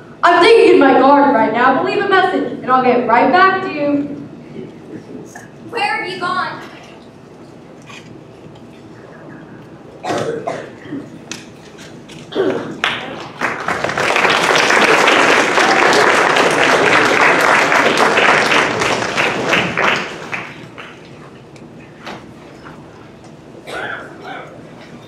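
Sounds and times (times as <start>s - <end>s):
audience voices: 12.3s - 20.9s
audience clapping: 12.5s - 21.2s.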